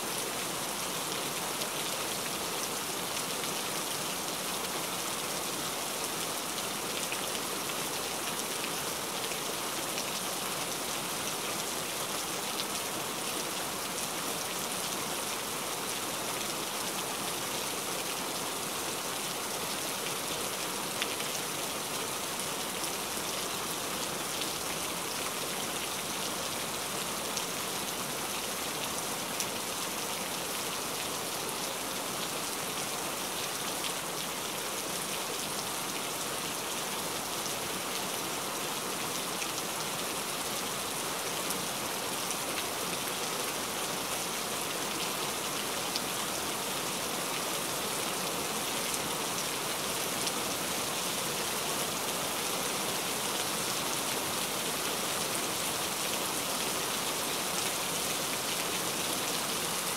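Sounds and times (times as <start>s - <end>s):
steady rain hiss: 0.0s - 59.9s.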